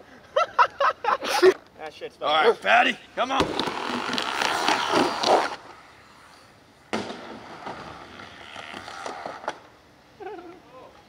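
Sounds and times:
skateboard wheels rolling: 3.2 - 11.0.

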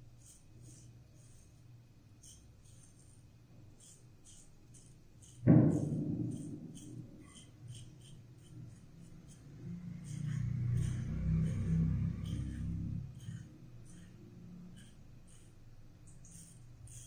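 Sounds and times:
razor scraping stubble: 2.2 - 17.0
loud ringing thump: 5.4 - 7.1.

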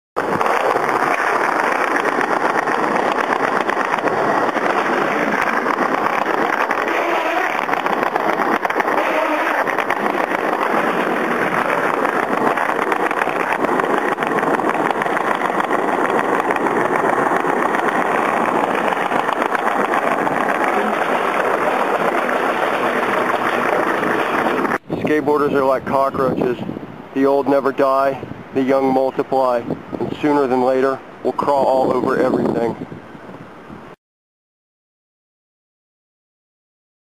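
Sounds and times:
skateboard wheels rolling on pavement: 0.2 - 34.0.

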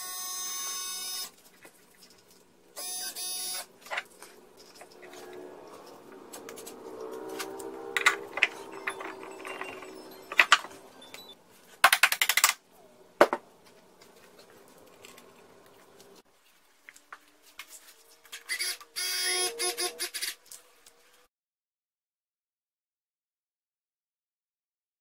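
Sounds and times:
metal tools clicking and clattering: 4.0 - 12.5.

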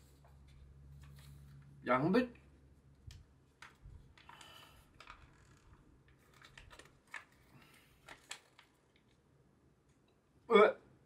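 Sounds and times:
sharp plastic crackles: 3.1 - 9.3
plastic pouch crinkling and tearing: 6.1 - 9.2.

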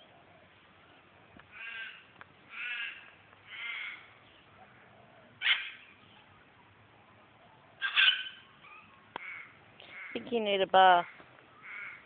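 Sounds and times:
crow cawing: 1.5 - 4.1, 9.2 - 10.3, 11.0 - 12.0.

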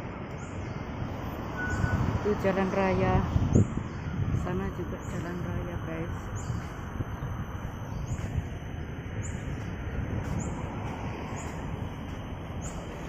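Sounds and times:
road traffic rumble: 0.0 - 13.0
faint high chirp: 1.5 - 2.1, 3.5 - 9.7.

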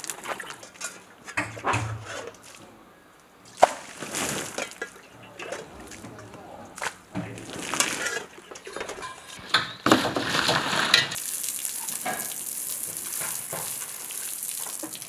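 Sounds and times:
metal basin clattering: 0.0 - 2.7, 3.5 - 11.2, 11.8 - 14.0
water splashing: 0.0 - 15.0
hose spraying water on wall: 9.5 - 15.0.

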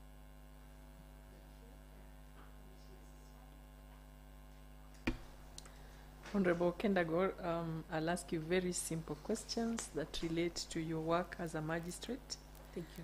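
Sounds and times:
electrical mains hum: 0.0 - 13.0
short knock: 5.0 - 5.4.

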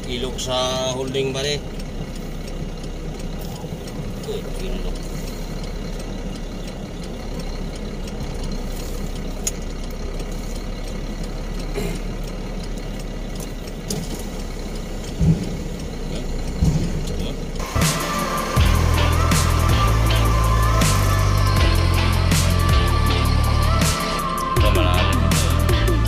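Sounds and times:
diesel truck engine running: 0.0 - 26.0
short low thumps: 15.1 - 18.0.

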